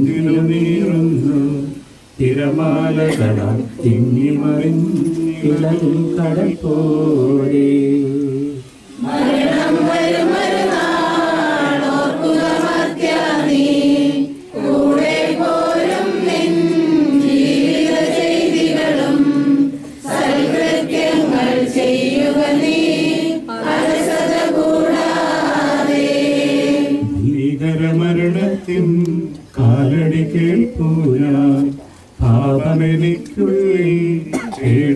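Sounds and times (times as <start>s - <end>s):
group singing a hymn unaccompanied: 0.0s - 34.9s
priest chanting a prayer: 2.2s - 8.6s.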